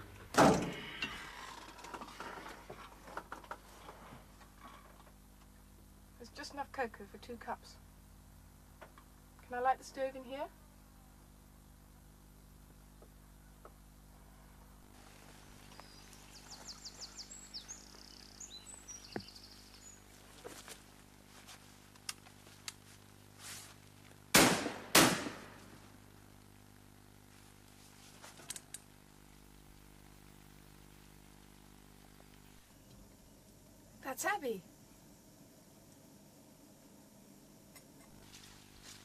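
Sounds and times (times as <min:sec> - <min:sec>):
birds chirping: 0:15.1 - 0:20.6
shotgun shots with echo: 0:24.3 - 0:25.6.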